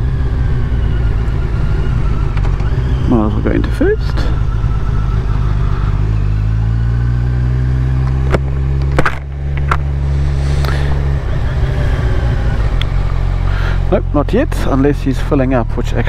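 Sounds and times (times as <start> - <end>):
motorcycle engine at low revs: 0.0 - 16.0.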